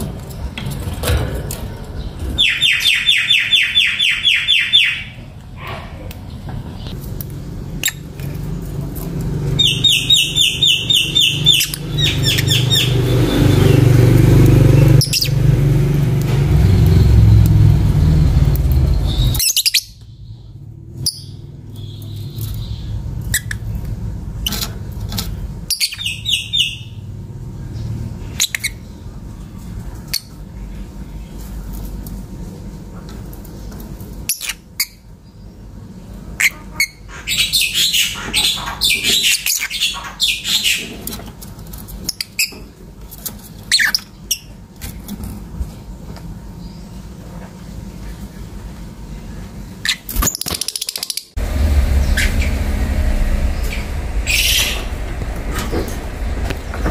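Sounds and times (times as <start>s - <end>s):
lovebirds chirping: 1.9s - 5.3s, 6.1s - 13.9s, 14.7s - 15.4s
loud low rumble: 5.1s - 19.4s, 51.3s - 56.9s.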